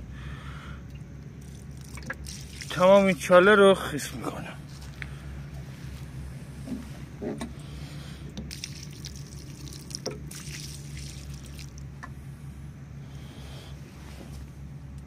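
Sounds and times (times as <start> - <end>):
water pouring onto soil: 1.4 - 3.9, 4.6 - 5.1, 8.4 - 11.9.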